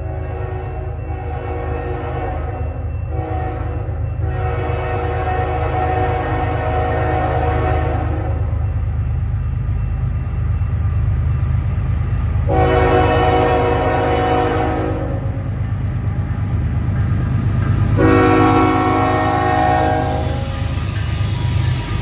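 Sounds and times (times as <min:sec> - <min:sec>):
locomotive air horn blasts: 0:00.0 - 0:08.4, 0:12.5 - 0:15.4, 0:17.9 - 0:20.7
low train rumble: 0:00.0 - 0:22.0.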